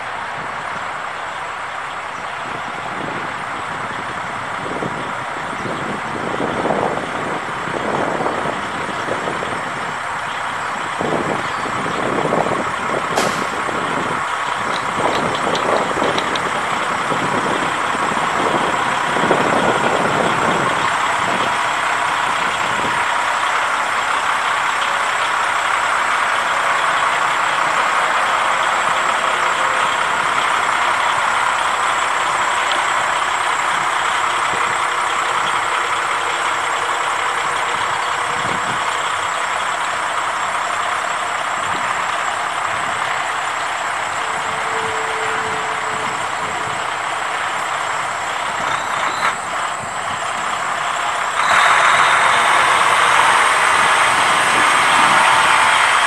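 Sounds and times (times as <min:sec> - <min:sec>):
diesel truck engine running: 0:00.0 - 0:56.0
sharp click: 0:13.1 - 0:13.7.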